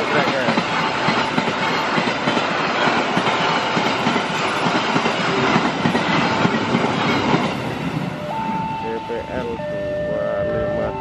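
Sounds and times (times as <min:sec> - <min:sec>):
wheels clattering over rails: 0:00.0 - 0:08.2
train coaches passing at speed: 0:00.0 - 0:11.0.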